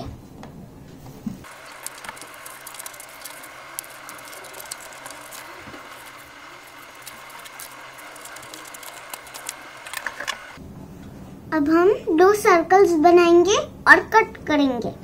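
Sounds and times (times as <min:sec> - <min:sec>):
paper rustling: 0:01.4 - 0:10.6.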